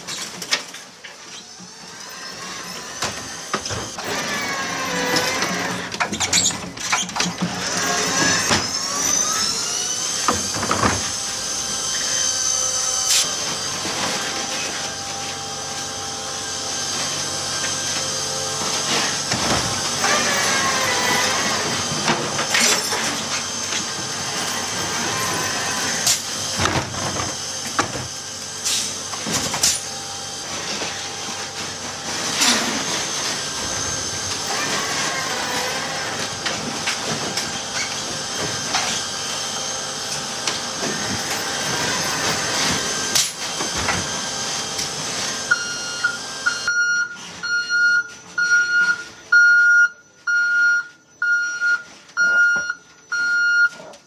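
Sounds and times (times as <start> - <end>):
hydraulic whine and hiss: 1.3 - 46.7
truck warning beeper: 45.5 - 54.0.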